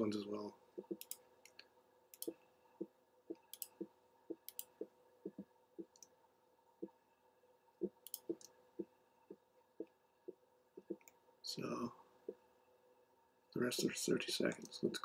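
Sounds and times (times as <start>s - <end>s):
computer mouse clicking: 0.8s - 2.4s, 3.3s - 6.1s, 7.8s - 8.9s.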